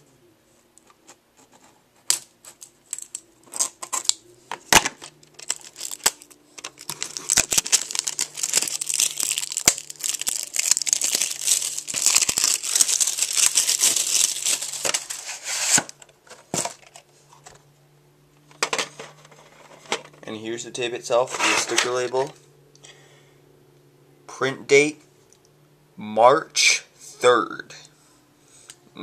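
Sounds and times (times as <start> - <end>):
plastic wrapping crinkling: 4.8 - 16.0.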